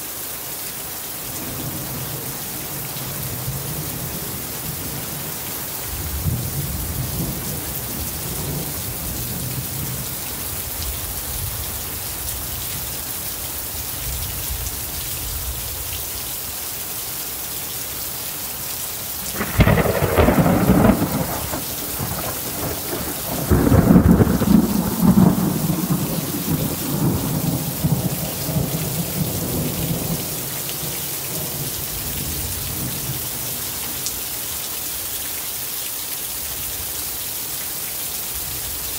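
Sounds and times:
rain hissing: 0.0s - 38.9s
thunder cracking and rumbling: 19.2s - 33.1s.

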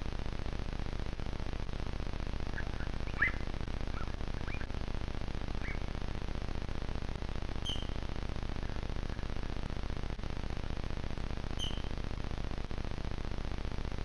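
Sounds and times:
steady low hiss: 0.0s - 14.0s
cougars chirping: 2.6s - 4.7s, 5.6s - 5.9s, 7.6s - 8.0s, 11.6s - 11.9s.

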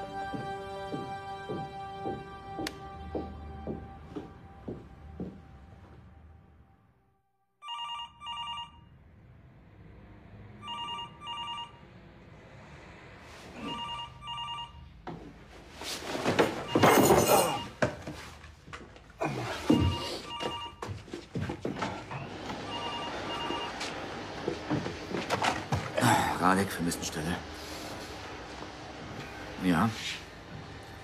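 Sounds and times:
telephone ringing: 7.6s - 8.9s, 10.6s - 11.8s, 13.6s - 14.9s, 16.6s - 17.8s, 19.7s - 20.8s, 22.6s - 23.9s.

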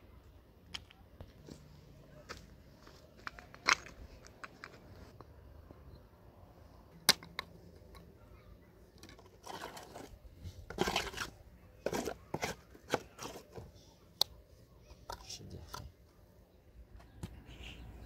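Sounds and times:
trowel scraping wet mortar: 9.2s - 13.7s.

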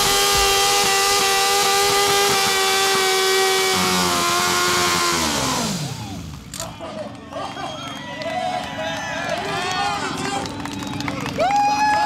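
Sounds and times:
motorcycle engine at high revs: 0.0s - 6.5s.

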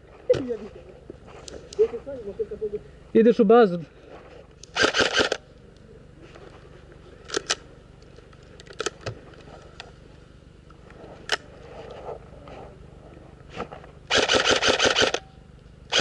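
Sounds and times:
airsoft guns firing: 4.8s - 5.4s, 14.1s - 15.2s.

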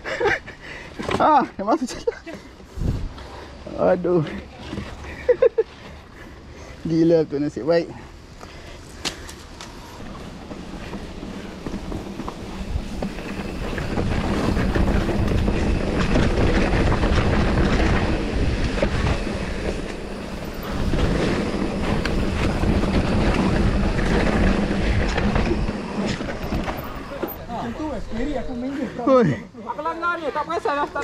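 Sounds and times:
bike tyres rolling on dirt: 0.0s - 31.0s
wind on microphone: 2.7s - 3.2s, 10.7s - 27.3s
bike rattling over bumps: 8.5s - 29.1s.

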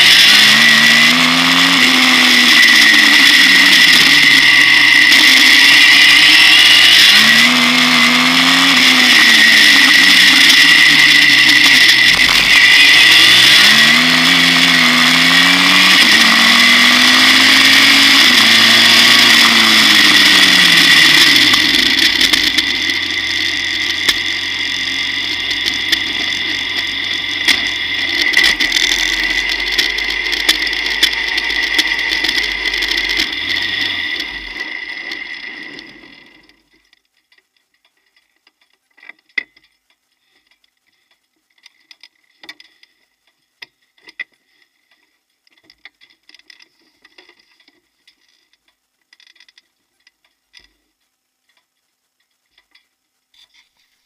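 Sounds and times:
car engine running: 0.0s - 36.7s
faint clicks and ticks: 25.4s - 54.0s.

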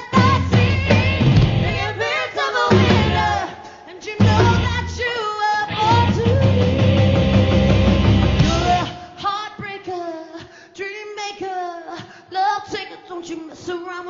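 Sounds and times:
live rock band: 0.0s - 3.6s, 4.2s - 9.2s
woman singing: 0.0s - 14.0s.

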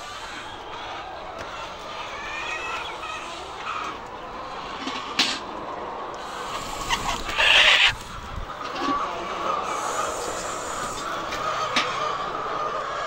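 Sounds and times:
chickens clucking: 0.0s - 13.0s
wings flapping: 6.5s - 8.4s.

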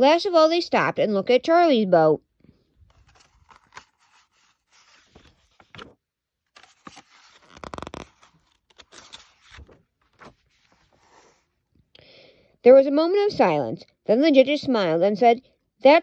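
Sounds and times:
book pages rustling: 2.7s - 11.6s.

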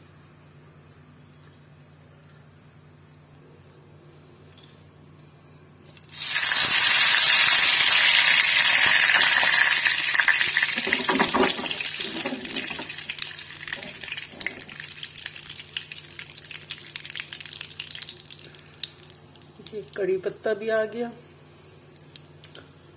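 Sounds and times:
oil crackling and spitting: 5.9s - 20.0s
leaves sizzling in hot oil: 5.9s - 20.2s.

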